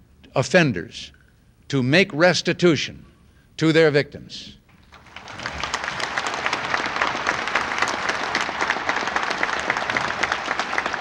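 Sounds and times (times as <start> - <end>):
large audience applauding: 4.9 - 11.0.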